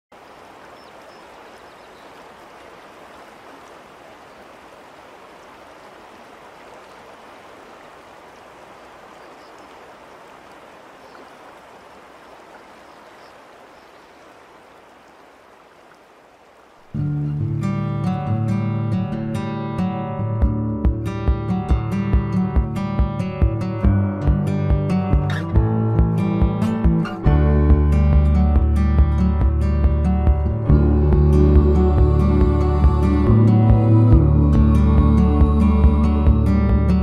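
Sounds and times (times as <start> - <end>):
river water rushing over a ford: 0.1 - 18.8.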